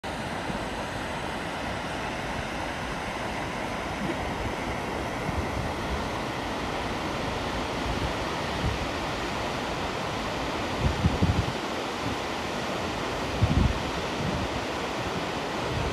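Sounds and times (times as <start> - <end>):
waterfall rushing: 0.0 - 15.9
wind buffeting microphone: 10.6 - 12.3, 13.2 - 15.9.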